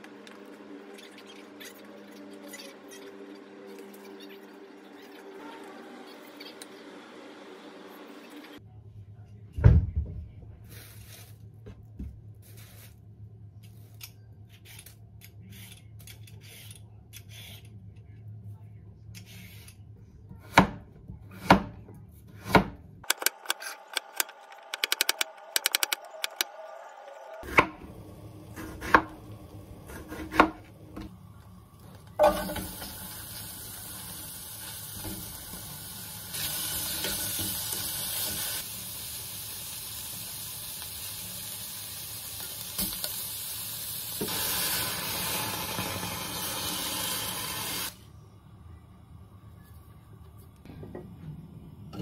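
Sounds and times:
gas stove hiss: 32.2s - 48.0s.

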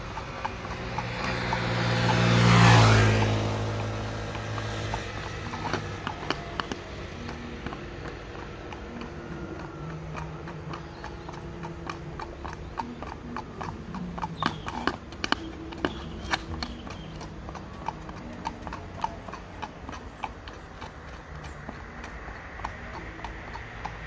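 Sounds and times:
hooves clip-clopping on asphalt: 0.0s - 24.0s.

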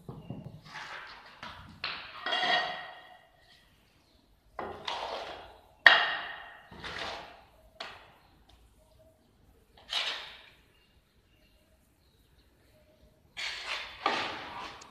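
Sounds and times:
trowel scraping in mortar: 0.6s - 3.1s, 4.7s - 5.6s, 6.7s - 7.5s, 9.8s - 10.6s, 13.4s - 14.9s.

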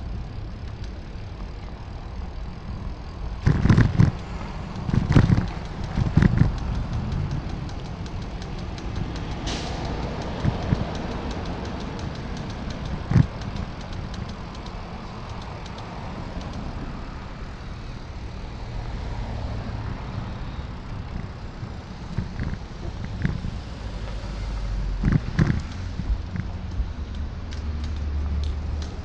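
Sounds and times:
wind and road rumble: 0.0s - 29.0s.

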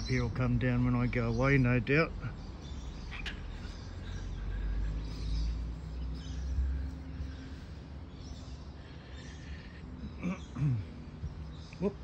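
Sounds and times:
faint bird chirps: 1.1s - 12.0s
passing vehicle engine rumble: 2.1s - 10.1s.

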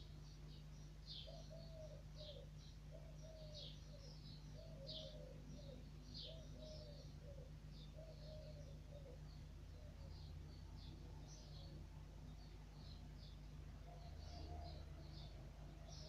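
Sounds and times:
small bird chirping: 0.0s - 16.0s
dove cooing: 1.2s - 9.2s.

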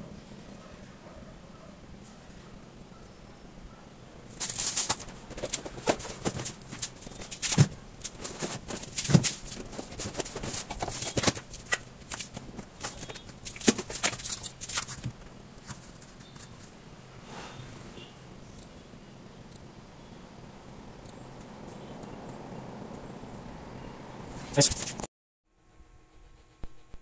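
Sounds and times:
objects handled with rustling and clicks: 4.3s - 16.8s.

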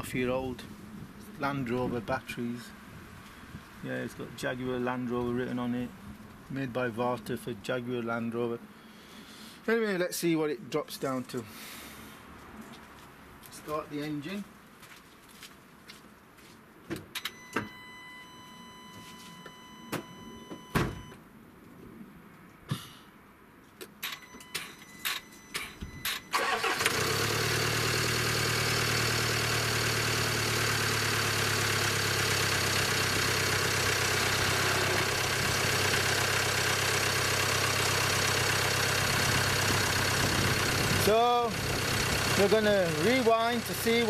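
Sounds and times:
car engine cranking and starting: 24.0s - 44.0s
car engine idling: 25.6s - 44.0s.

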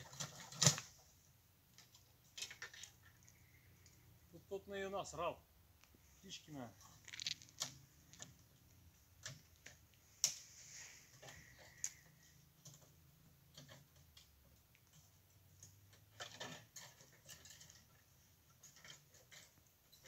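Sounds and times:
faint clicks and light knocks: 11.1s - 20.0s.

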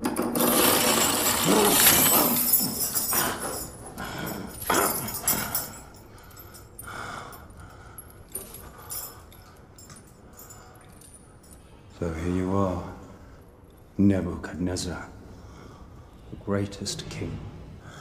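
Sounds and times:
chain clinking: 0.0s - 12.0s.

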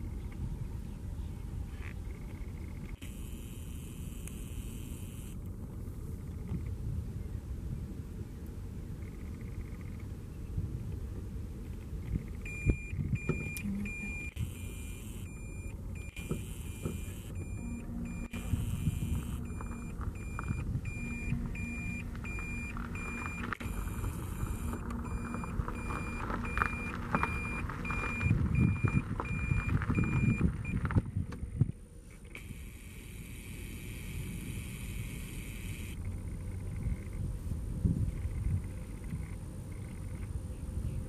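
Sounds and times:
low rumbling noise: 0.0s - 41.0s
short high electronic beeps: 12.5s - 30.5s.

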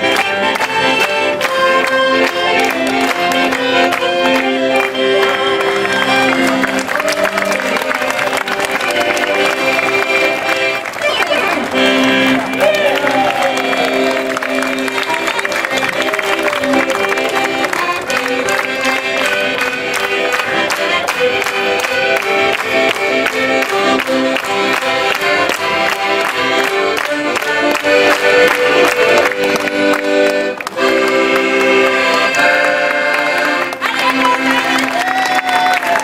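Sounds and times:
accordion playing rhythmic chords: 0.0s - 36.0s.

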